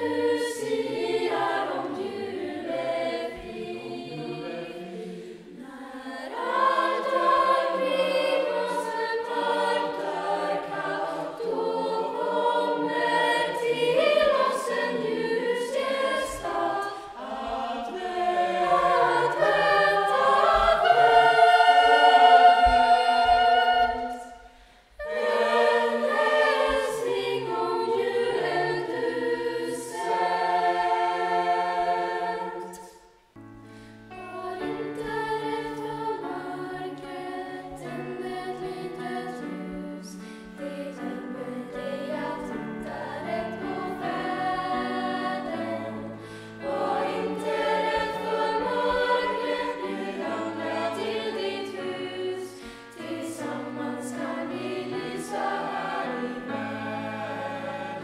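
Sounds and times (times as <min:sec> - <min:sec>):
choir of young female voices: 0:00.0 - 0:58.0.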